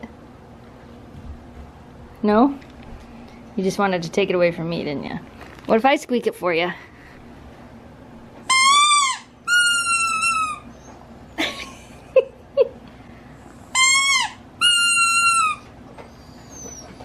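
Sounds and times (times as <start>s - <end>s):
squeaky dog toy squeaking: 8.5s - 10.8s, 13.7s - 15.7s.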